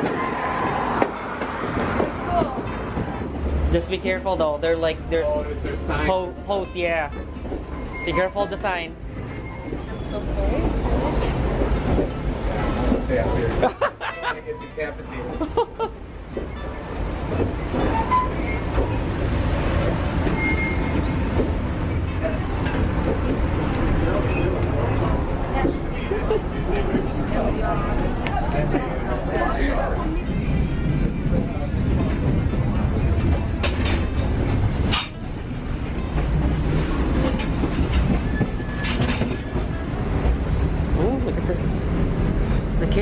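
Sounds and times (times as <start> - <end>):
murmur of passengers: 0.0 - 43.0
rail car rumbling: 0.0 - 43.0.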